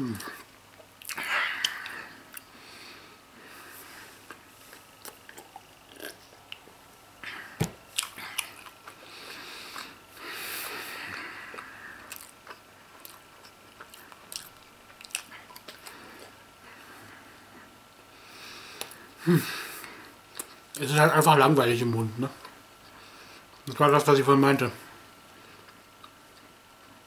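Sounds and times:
man chewing cheese: 0.1s - 2.6s, 4.0s - 6.9s, 7.8s - 16.8s, 20.3s - 20.7s, 25.4s - 27.0s.

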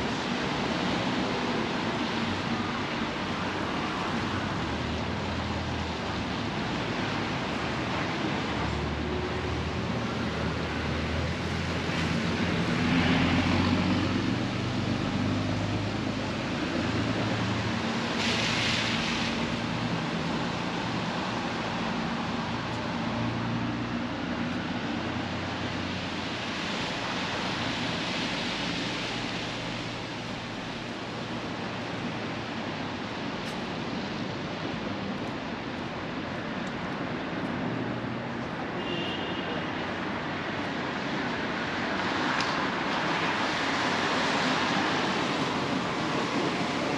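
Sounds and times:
traffic rumble: 0.0s - 46.9s
steady rain hiss: 15.8s - 38.5s.

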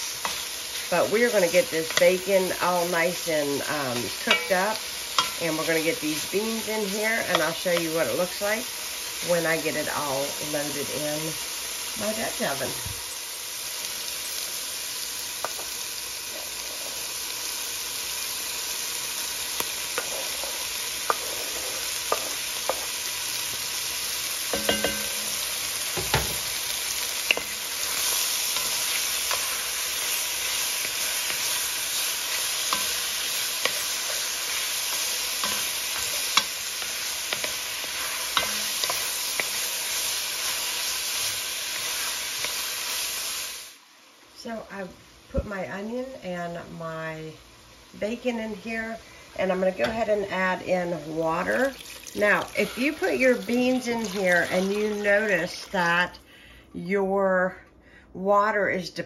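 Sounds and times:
bacon sizzling in fat: 0.0s - 44.1s, 44.7s - 56.2s
wooden spoon scraping pot: 20.0s - 22.9s.

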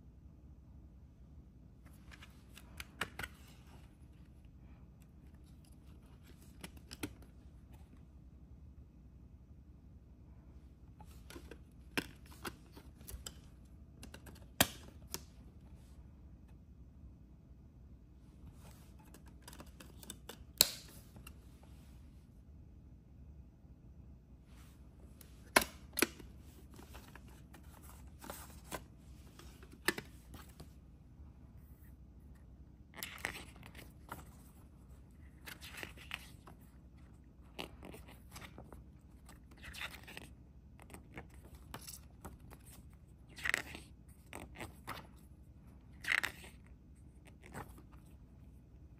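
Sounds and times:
paper booklet rustling: 24.5s - 30.8s, 33.0s - 45.3s.

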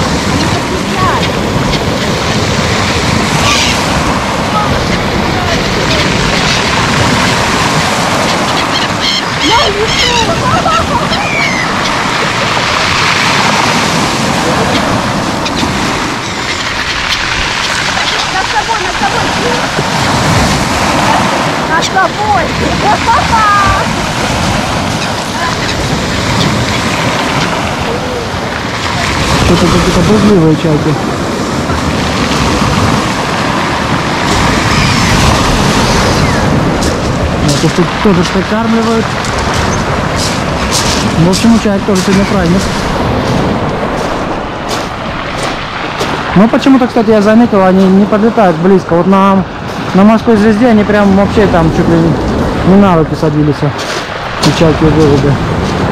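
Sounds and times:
surf washing over pebble beach: 0.0s - 55.9s
gull calling: 2.9s - 29.3s, 34.2s - 36.7s.

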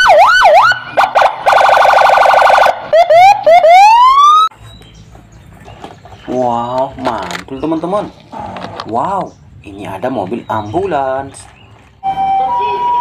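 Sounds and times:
electronic police siren: 0.0s - 4.5s, 12.0s - 13.0s.

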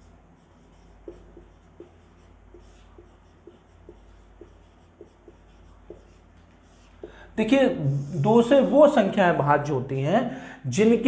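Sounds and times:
low steady hum: 0.0s - 11.0s
marker squeaking on whiteboard: 0.4s - 7.1s.

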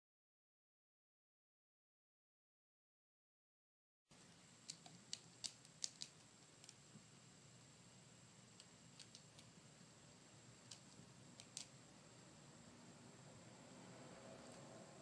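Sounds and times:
faint high hiss: 4.1s - 15.0s.

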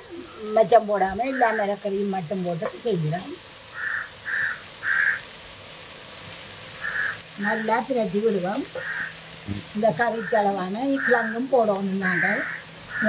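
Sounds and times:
food sizzling: 0.0s - 13.0s
loud wavering call: 12.0s - 13.0s.

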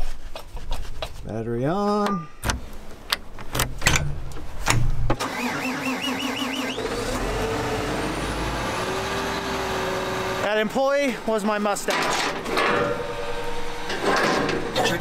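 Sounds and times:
tractor diesel engine running: 5.2s - 10.7s
clunks and knocks: 13.9s - 14.8s.

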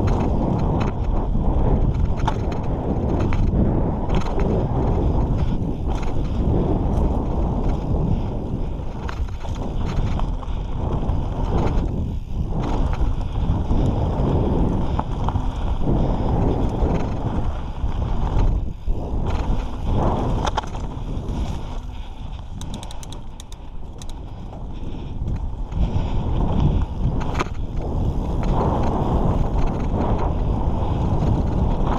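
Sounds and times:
bike tyres rumbling on dirt: 0.0s - 31.9s
wind buffeting microphone: 0.0s - 31.9s
light ticks: 22.3s - 24.2s.

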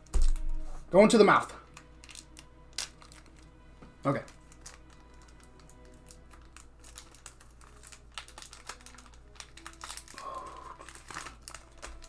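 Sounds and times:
foil wrapper crinkling and tearing: 1.6s - 3.5s, 4.1s - 12.0s.

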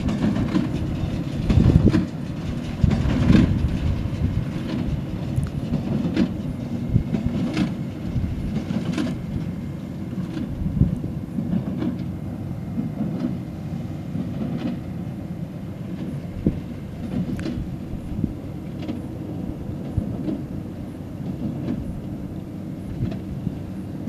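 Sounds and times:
sharp ticks and knocks: 0.0s - 7.8s, 8.5s - 10.6s, 11.4s - 12.1s, 14.2s - 14.8s, 17.0s - 17.7s
combine harvester rumbling: 0.0s - 24.0s.

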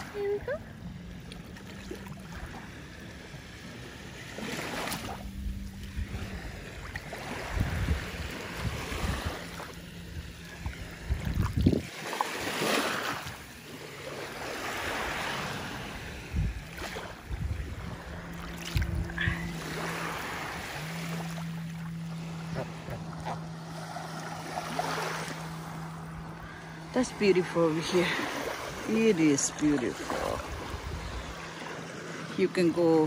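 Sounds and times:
small waves washing on sand: 0.0s - 33.0s
wind gusting on microphone: 5.9s - 11.9s, 15.9s - 20.9s, 26.8s - 31.6s.

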